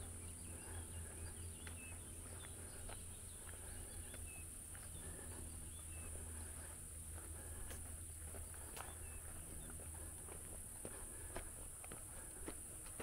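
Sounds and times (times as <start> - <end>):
bird chirps: 0.0 - 6.8.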